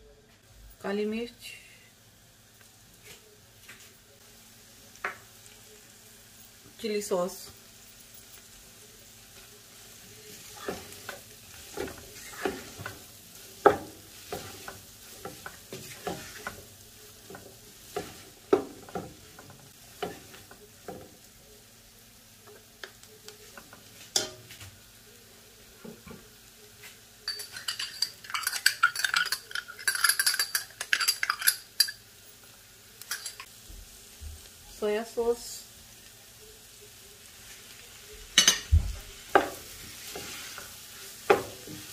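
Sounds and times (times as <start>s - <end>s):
wooden spatula scraping a wok: 10.3s - 16.7s, 39.2s - 41.9s.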